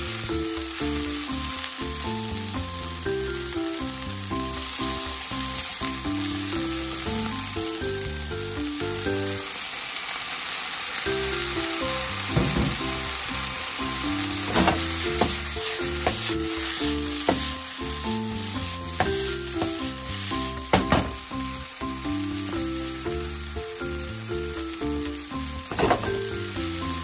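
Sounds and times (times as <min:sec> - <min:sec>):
food sizzling in a frying pan: 0:00.0 - 0:27.0
chopsticks stirring: 0:11.3 - 0:21.8.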